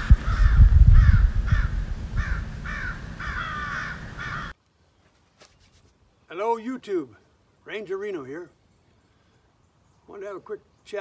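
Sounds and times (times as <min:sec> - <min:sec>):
crow-like caws: 0:00.2 - 0:04.6.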